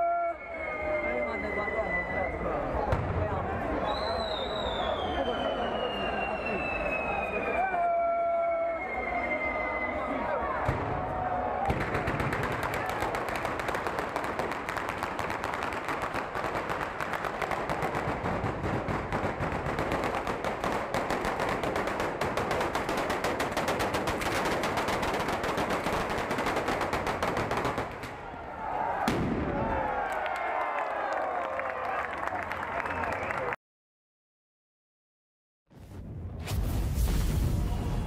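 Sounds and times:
crowd shouting and cheering: 0.0s - 12.1s, 28.2s - 33.6s
firecrackers crackling bangs: 11.6s - 28.3s, 29.1s - 29.7s.

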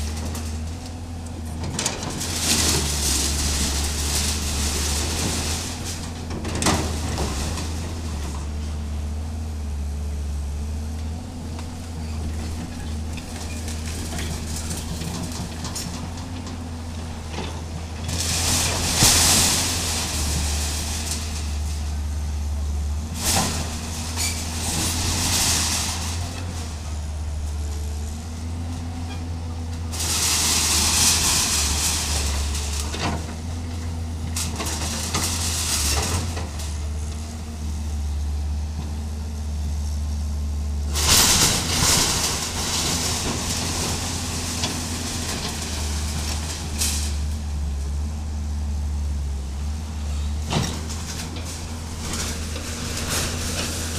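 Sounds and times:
diesel engine running: 0.0s - 53.9s
crashing timber and metal sheets: 1.6s - 8.8s, 12.2s - 37.0s, 40.9s - 48.4s, 50.4s - 53.9s.

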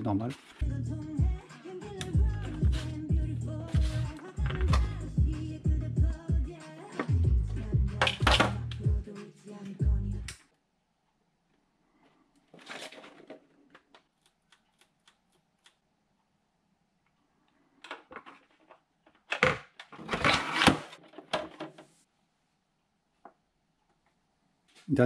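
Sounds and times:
plastic parts scraping and clattering: 8.0s - 8.6s, 12.4s - 14.9s, 17.8s - 22.0s.

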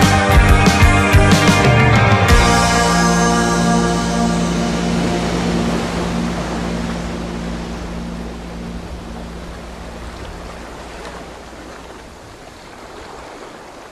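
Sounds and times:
song's last chord: 0.0s - 10.6s
ocean surf: 0.0s - 13.9s.

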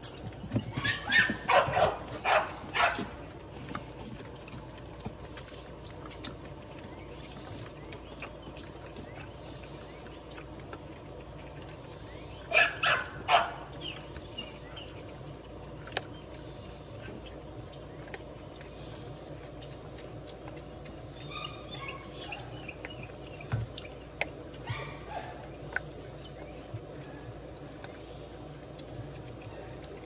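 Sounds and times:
puppies crunching kibble: 0.0s - 30.0s
puppy barks: 0.7s - 3.2s, 12.5s - 13.7s, 21.2s - 22.6s, 24.6s - 25.4s
bird chirping: 11.6s - 19.8s.

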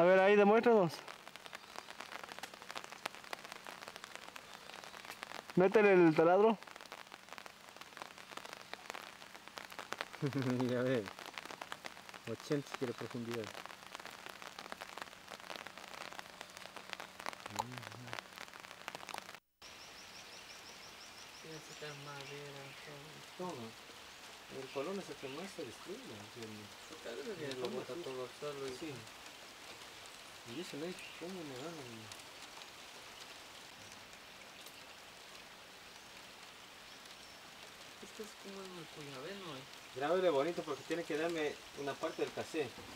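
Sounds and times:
crackles and drips patter: 0.0s - 42.9s
light rain on water: 0.0s - 42.9s
man speaking: 5.6s - 6.6s, 10.2s - 11.1s, 12.3s - 13.5s, 17.5s - 18.2s, 24.5s - 29.1s.

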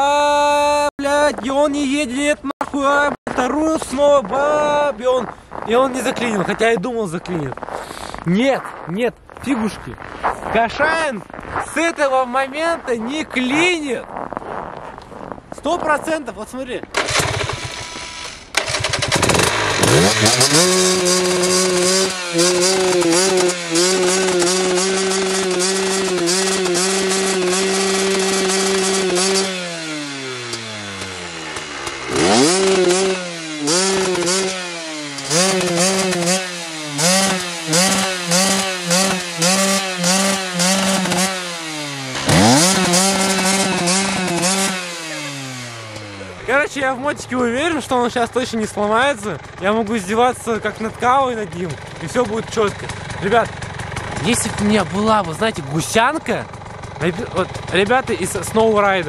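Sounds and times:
dirt bike engine revving: 16.9s - 59.0s.

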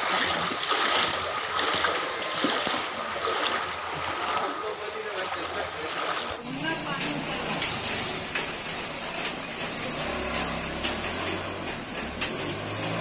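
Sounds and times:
rain hissing: 6.4s - 13.0s
vehicle engine humming low: 6.4s - 13.0s.

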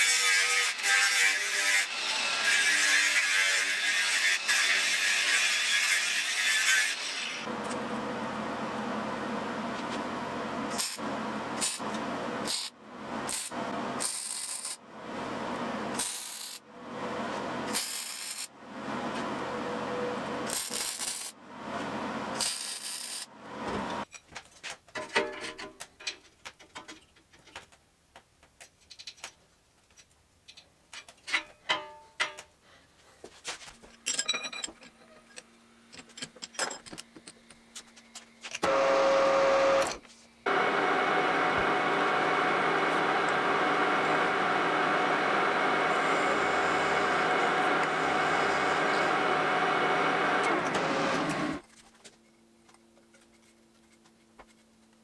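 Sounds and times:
mig welder welding: 10.7s - 14.8s, 15.8s - 16.6s, 17.3s - 18.5s, 19.9s - 24.0s, 38.6s - 51.6s
steel parts clicking and knocking: 28.4s - 32.5s, 34.0s - 38.6s
metal lathe cutting steel: 38.6s - 51.6s.

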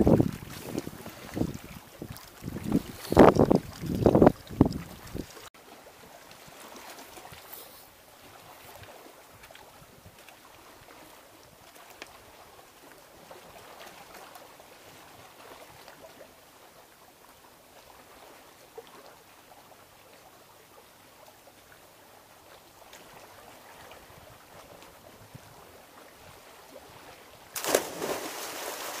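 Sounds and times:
water splashing: 0.0s - 7.8s, 26.8s - 29.0s
swimmer jumping into water: 27.5s - 29.0s.

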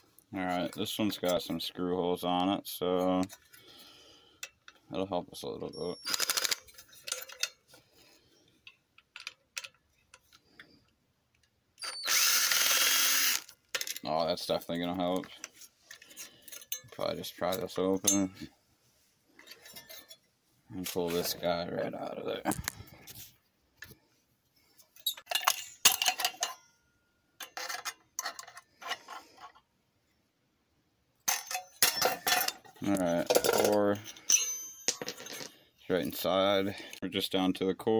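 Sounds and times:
metallic clinks and scrapes: 2.8s - 10.9s, 13.7s - 18.6s, 19.3s - 21.6s, 24.7s - 29.6s, 31.3s - 36.9s
power drill whirring: 11.8s - 13.5s.

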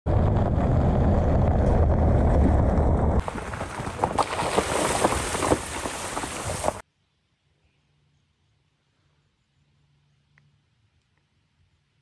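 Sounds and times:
truck rumbling on gravel: 0.1s - 6.8s
tyre splashing through puddle: 3.2s - 6.8s.

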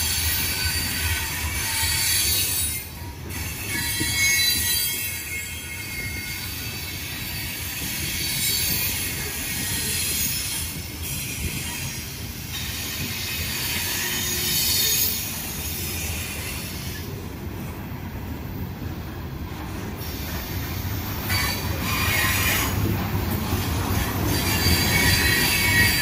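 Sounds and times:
steel wheels rumbling over rails: 5.8s - 26.0s
high-pitched wheel squeal: 24.3s - 26.0s.

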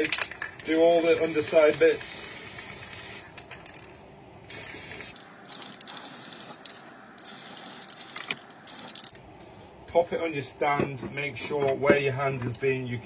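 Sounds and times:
spray can hissing: 0.6s - 3.3s, 4.5s - 9.1s.

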